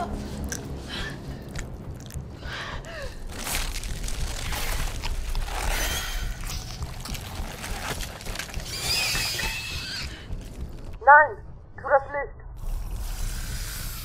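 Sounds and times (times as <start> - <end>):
low rumbling drone: 0.0 - 14.0
crunching effects: 3.3 - 11.0.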